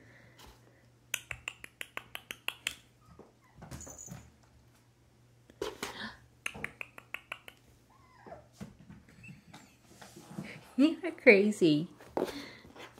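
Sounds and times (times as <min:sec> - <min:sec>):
kittens' claws clicking on hardwood: 0:06.5 - 0:07.6
kittens scuffling: 0:07.5 - 0:12.9.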